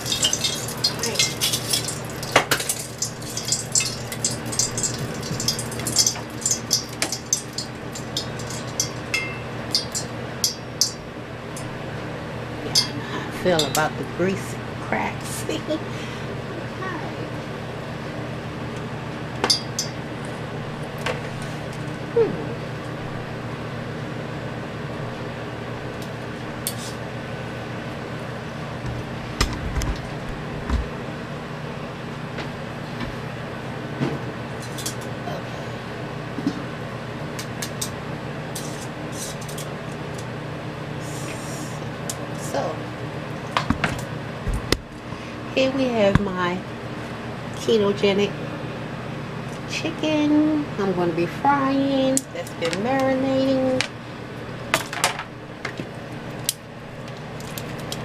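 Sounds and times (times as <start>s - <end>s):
frying oil crackling and popping: 0.0s - 11.0s, 54.8s - 58.0s
steady low hum: 0.0s - 58.0s.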